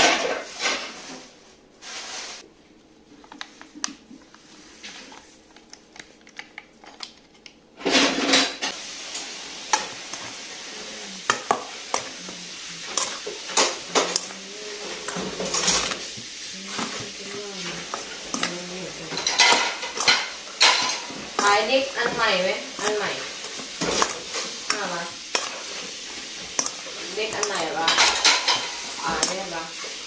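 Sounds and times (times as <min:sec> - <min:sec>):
spatula scraping metal bowl: 0:09.1 - 0:30.0.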